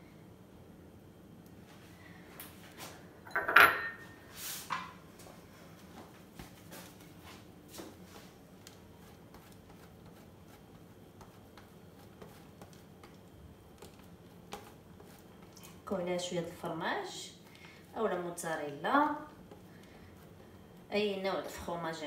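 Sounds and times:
kitchenware clattering on counter: 3.3 - 4.1
cheese rasping on grater: 8.7 - 15.8.

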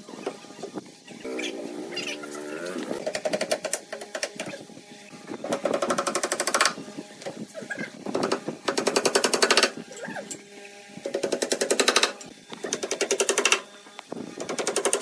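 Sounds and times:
hammer driving nails into wood: 11.1 - 13.6.

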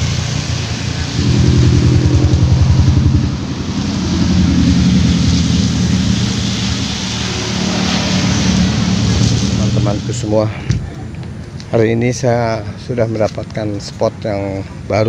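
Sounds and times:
pickup truck passing: 0.0 - 10.6
tyres hissing on wet road: 0.0 - 11.9
motorcycle engine passing: 0.6 - 9.9.

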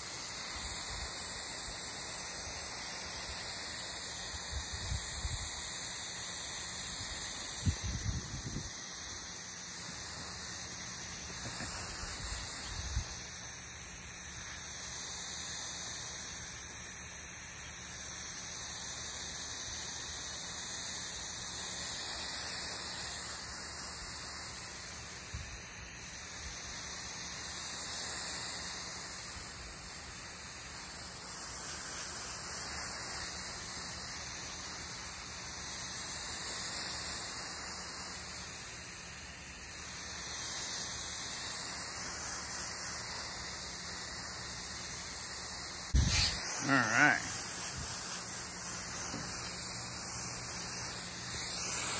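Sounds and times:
garden hose spraying water: 0.0 - 51.9.

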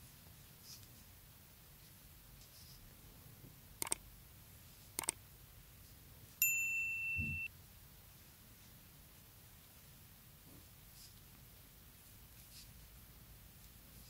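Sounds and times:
mouse double-clicks: 3.8 - 4.0, 5.0 - 5.2
notification bell ding: 6.4 - 7.5.

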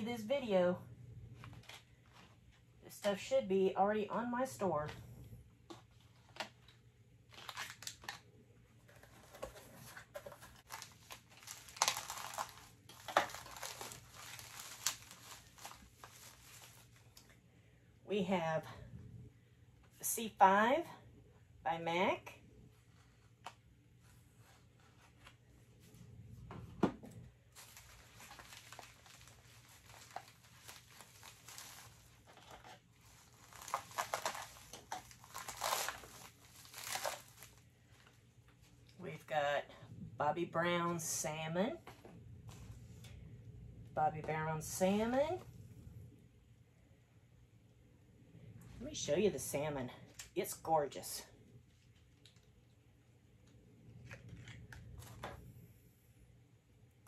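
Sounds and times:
faint electrical hum: 0.0 - 57.0
plastic bag crinkling: 7.3 - 8.2, 8.9 - 17.3, 27.5 - 38.2.

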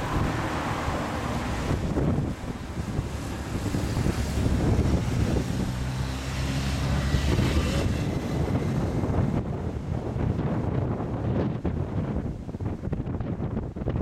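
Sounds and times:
wind buffeting microphone: 0.0 - 14.0.

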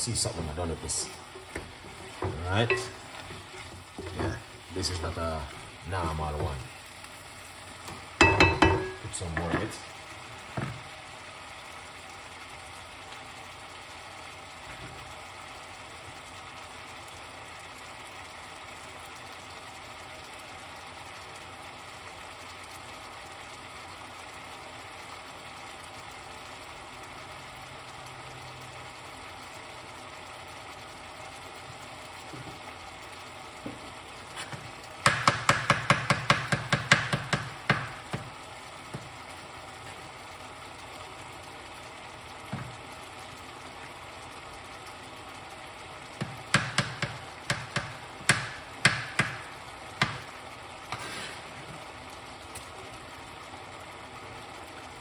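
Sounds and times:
vegetables sizzling in a pot: 0.0 - 55.0
sharp knocks: 35.0 - 38.3.

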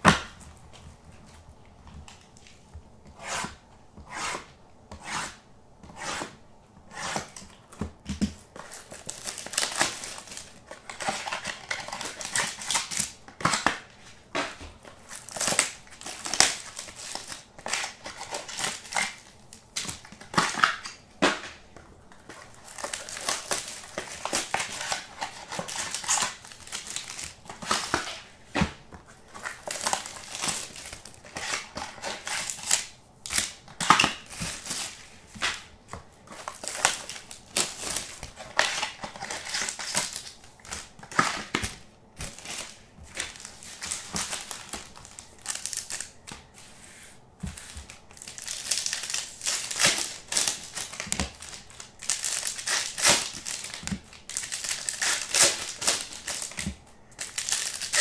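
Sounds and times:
wrapping crinkling and rustling: 7.2 - 58.0.

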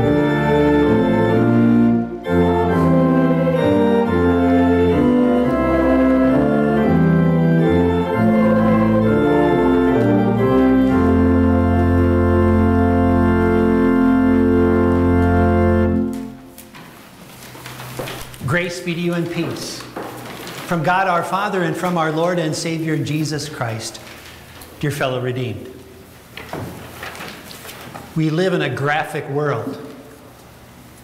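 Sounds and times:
church organ playing hymn: 0.0 - 17.0, 17.6 - 24.2.

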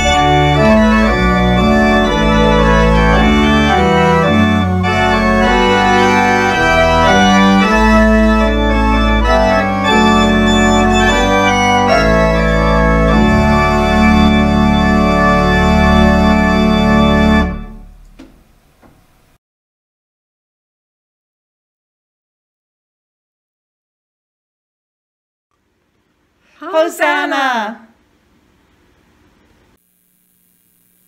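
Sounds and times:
pipe organ playing chords: 0.0 - 18.2.

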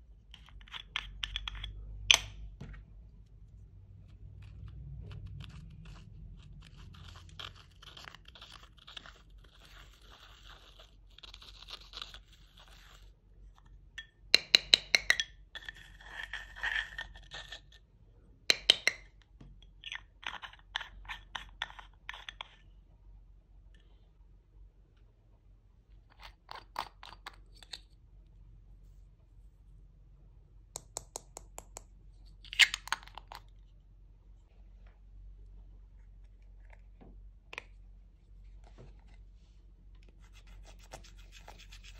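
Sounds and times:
dry gritty crunching and scratching: 3.9 - 13.1.

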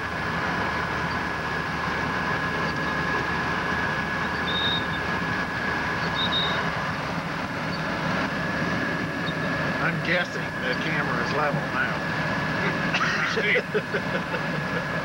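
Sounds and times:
snowcat engine and tracks: 0.0 - 15.0
brief high squeaks: 4.4 - 5.0, 6.0 - 6.6.

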